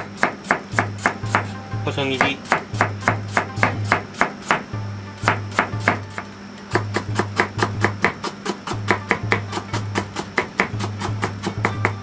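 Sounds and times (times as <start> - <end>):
knife chopping on plastic board: 0.0 - 1.5, 2.2 - 4.6, 5.2 - 12.0
background music: 0.7 - 12.0.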